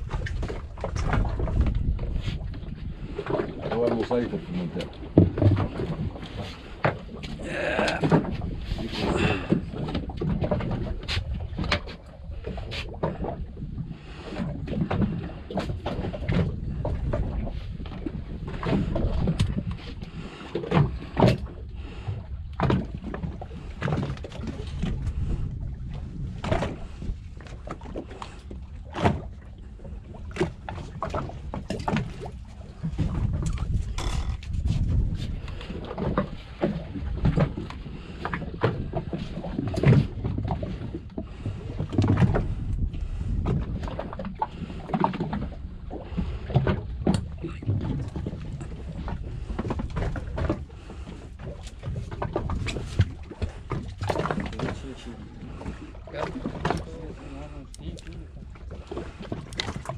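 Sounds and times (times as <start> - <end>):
low rumble of water and wind: 0.0 - 59.9
knocks and clicks of fishing line: 4.8 - 13.3, 17.8 - 19.8, 20.6 - 21.6, 30.4 - 40.8, 46.5 - 50.6, 56.2 - 56.9, 59.2 - 59.9.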